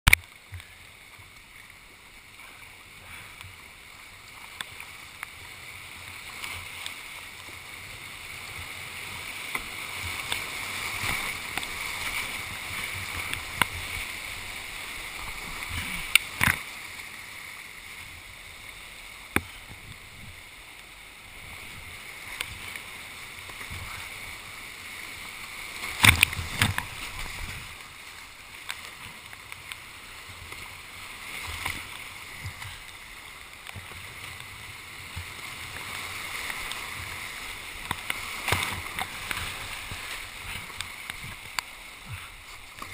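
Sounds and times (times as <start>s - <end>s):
white-water rapids rushing: 0.1s - 42.9s
paddle knocks and splashes: 25.8s - 27.7s, 37.8s - 42.9s.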